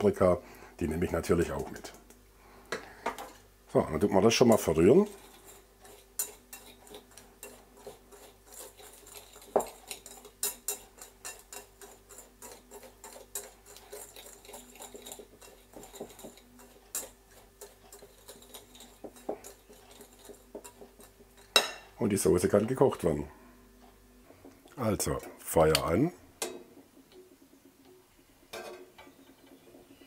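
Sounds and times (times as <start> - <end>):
wire whisk scraping glass bowl: 4.5 - 21.8.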